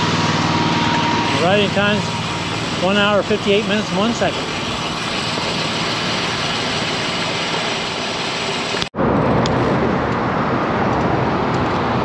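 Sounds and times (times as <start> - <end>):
bicycle tyre noise: 0.0 - 8.9
road traffic: 0.0 - 12.0
wind rush: 9.0 - 12.0.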